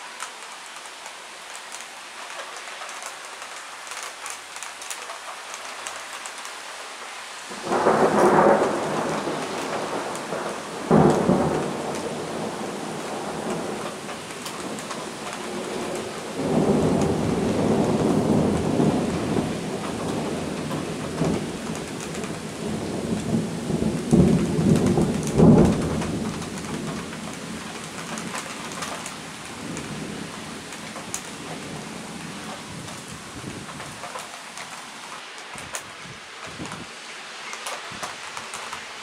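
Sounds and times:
rain hiss: 0:00.0 - 0:39.0
raindrop ticks: 0:00.1 - 0:06.6, 0:07.6 - 0:39.0
thunder clap: 0:07.5 - 0:34.2
thunder rumbling: 0:07.5 - 0:34.2.

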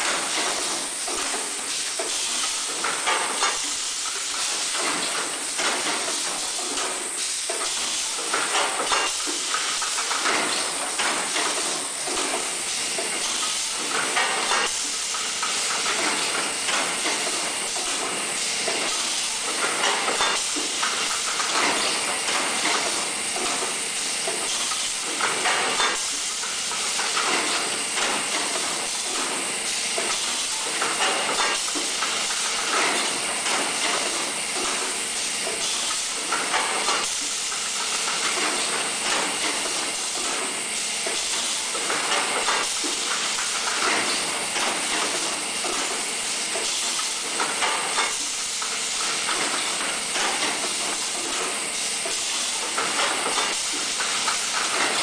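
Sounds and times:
machine cylinders clacking: 0:00.0 - 0:55.0
pneumatic air hiss: 0:00.1 - 0:16.2.

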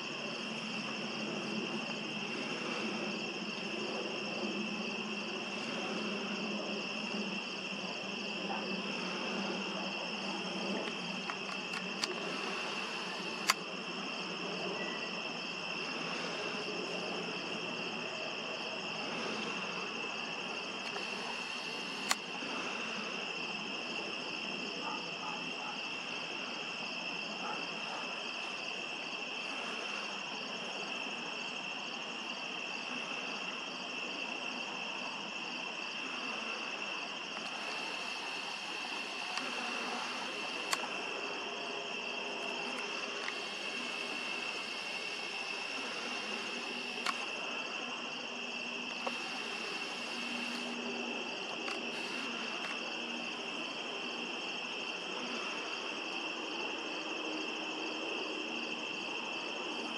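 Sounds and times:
crickets and insects trilling: 0:00.0 - 0:59.9
sharp clicks: 0:10.8 - 0:12.3, 0:13.1 - 0:13.6.

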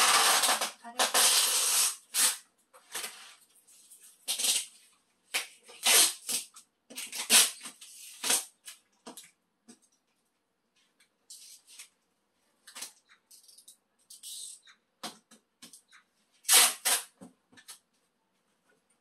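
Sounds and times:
tape and cardboard rustling: 0:00.0 - 0:09.2, 0:12.7 - 0:17.9.

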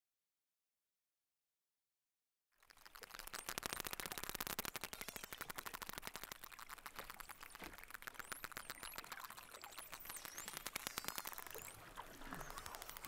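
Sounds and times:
dolphin echolocation clicks: 0:02.6 - 0:13.0.

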